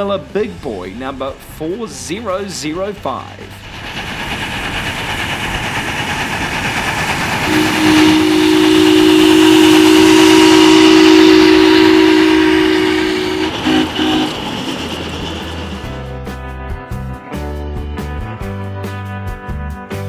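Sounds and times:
steam locomotive running: 0.0 - 17.2
two-note steam whistle: 7.0 - 16.0.

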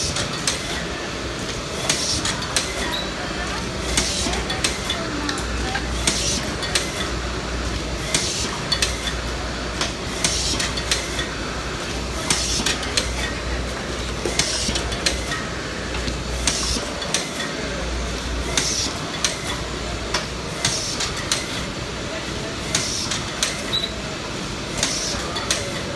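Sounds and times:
machine metallic clacks: 18.4 - 21.7.

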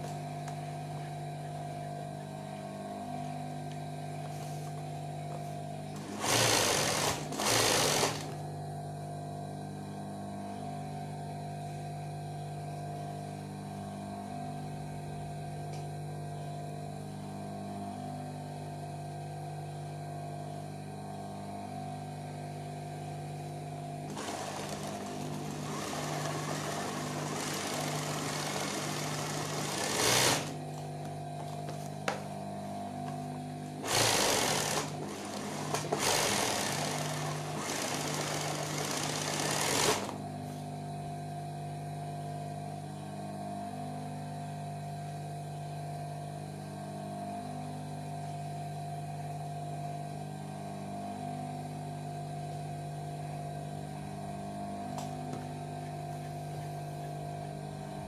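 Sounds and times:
motor hum: 0.0 - 58.0
sewing machine stitching: 6.0 - 8.4, 24.1 - 30.6, 33.8 - 40.2.

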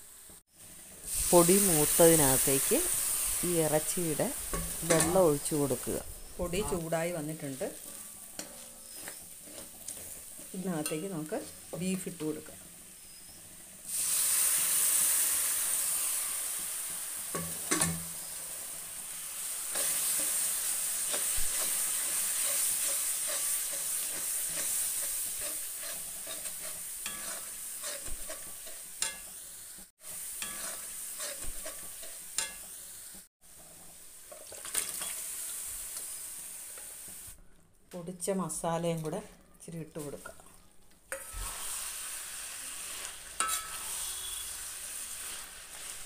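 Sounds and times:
meat and masala sizzling in a pan: 0.0 - 46.0
metal spatula scraping and stirring: 4.4 - 5.6, 6.5 - 11.5, 19.7 - 29.4, 30.4 - 32.7, 41.1 - 46.0.

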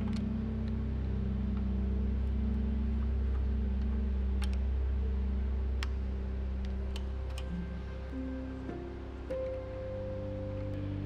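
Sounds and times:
synth drone music: 0.0 - 11.0
faint clicks: 1.5 - 4.8, 5.8 - 9.8.

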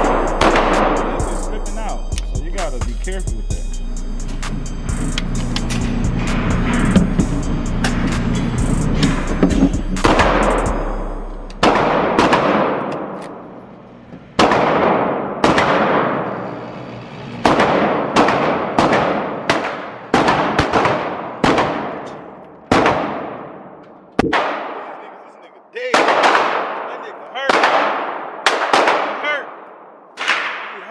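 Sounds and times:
gunshots echoing indoors: 0.0 - 1.5, 10.0 - 13.6, 14.3 - 16.4, 17.4 - 25.3, 25.9 - 30.9.

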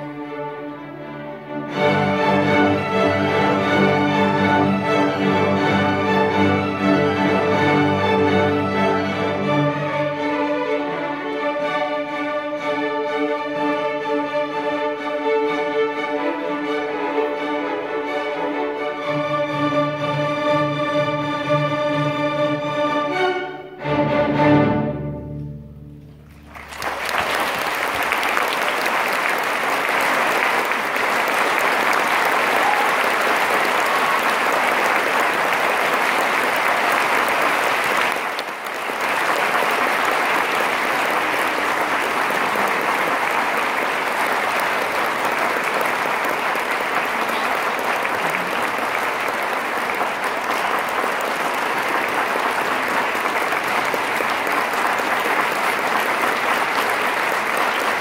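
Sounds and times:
large audience applauding: 1.6 - 11.3, 26.2 - 58.0.

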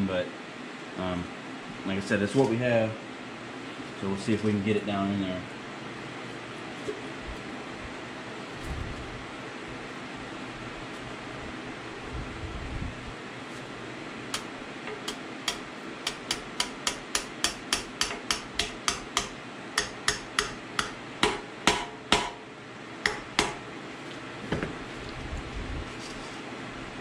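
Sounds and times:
hammer tapping on metal: 14.3 - 22.4, 23.0 - 23.6.

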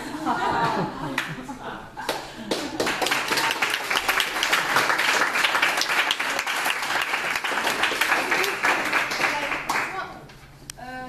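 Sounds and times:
audience applauding: 2.1 - 10.1.

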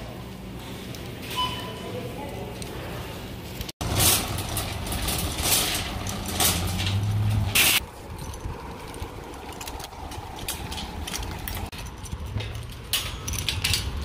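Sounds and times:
metal shopping cart rattling: 3.8 - 14.0.

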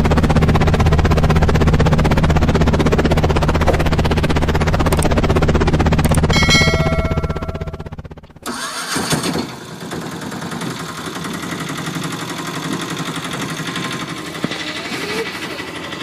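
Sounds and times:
toy helicopter rotor whirring: 13.2 - 16.0.

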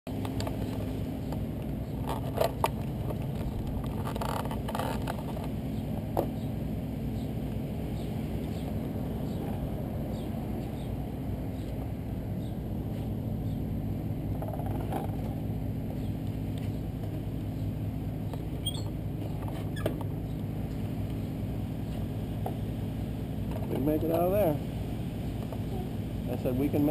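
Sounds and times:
motorcycle engine idling: 0.5 - 19.4.

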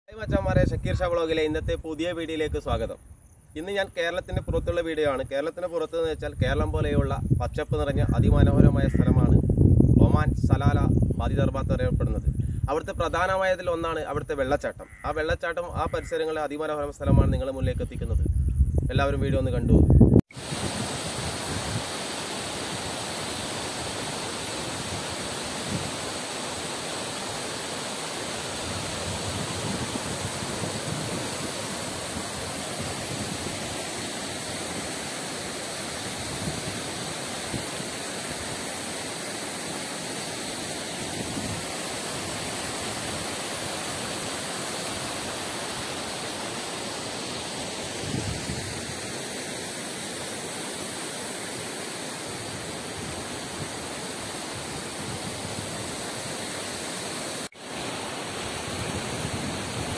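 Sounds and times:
waterfall rushing: 20.3 - 59.9
rocky stream flowing: 20.4 - 59.9.

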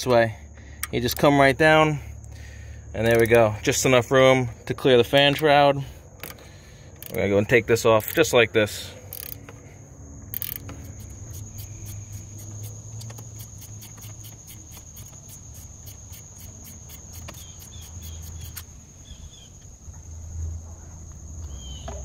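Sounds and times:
crickets chirping: 0.0 - 22.0
ratcheting wrench clicking: 3.0 - 3.4, 7.0 - 8.4, 9.0 - 9.6, 10.3 - 18.7.

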